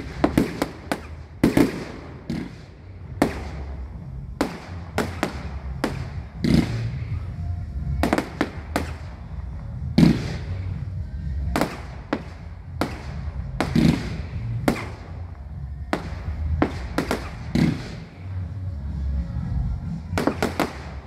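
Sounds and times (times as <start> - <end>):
fireworks bangs: 0.0 - 7.4, 8.0 - 10.8, 11.5 - 18.3, 20.1 - 21.0.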